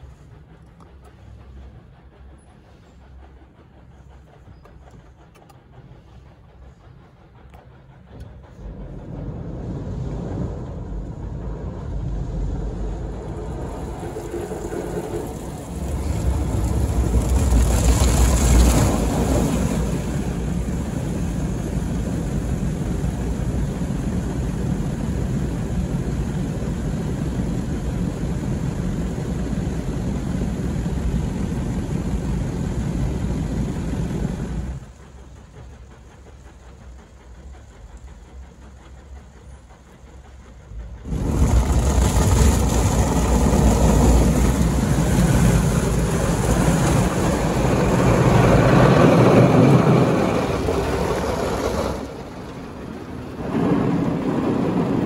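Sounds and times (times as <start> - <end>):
car wash machinery and spray: 0.0 - 55.0.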